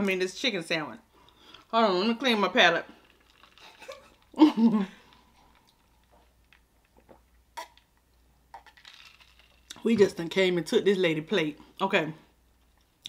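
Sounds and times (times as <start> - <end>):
sipping and swallowing: 5.0 - 9.8.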